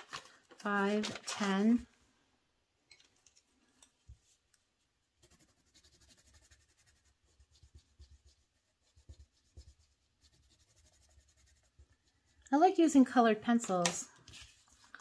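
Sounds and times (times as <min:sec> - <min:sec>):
pencil scribbling on paper: 0:05.2 - 0:12.5.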